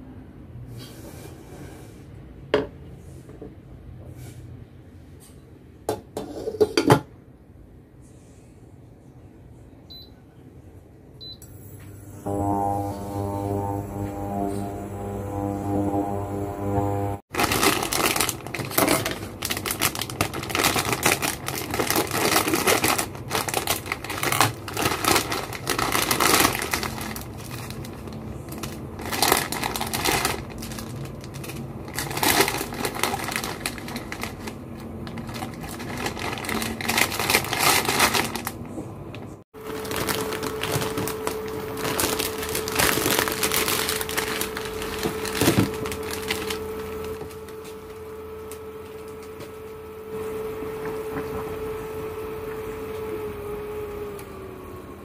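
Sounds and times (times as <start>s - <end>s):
cooker hum: 11.2s - 55.0s
plastic packet crinkling: 17.3s - 38.7s, 39.6s - 48.0s.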